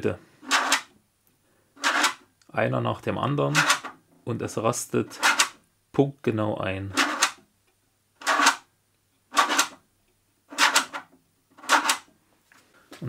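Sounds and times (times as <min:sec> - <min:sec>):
rotary selector clacking: 0:11.6 - 0:12.0.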